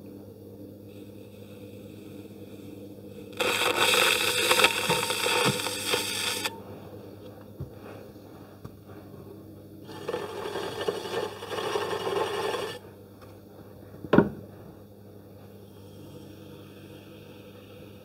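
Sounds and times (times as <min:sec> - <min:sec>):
potter's wheel motor hum: 0:00.9 - 0:07.6, 0:08.4 - 0:13.1
wooden tool scraping clay: 0:09.9 - 0:12.8.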